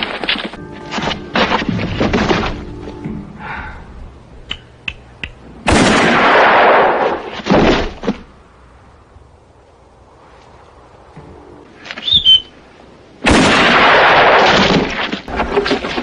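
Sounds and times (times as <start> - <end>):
scuffle blows thudding: 0.0 - 2.9.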